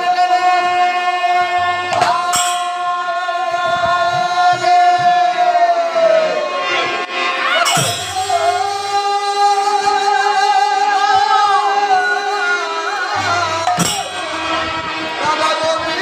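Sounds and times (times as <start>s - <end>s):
harmonium: 0.0s - 16.0s
men singing: 0.0s - 16.0s
barrel drums: 1.8s - 5.6s, 7.5s - 9.2s, 13.2s - 15.5s.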